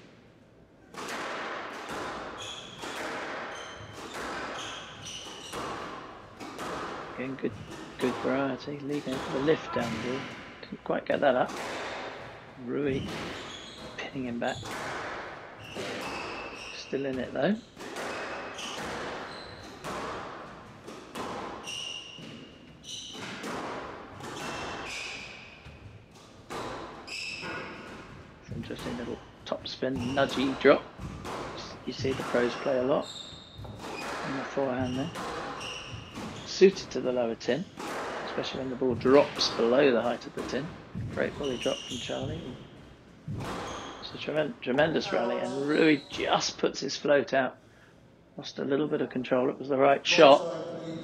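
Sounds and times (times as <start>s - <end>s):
squash ball cracking off rackets: 0.9s - 10.5s, 17.2s - 22.5s, 30.0s - 32.9s, 33.6s - 37.0s, 37.7s - 41.1s
shoes squeaking on wooden floor: 2.0s - 10.7s, 12.1s - 14.9s, 15.5s - 46.6s.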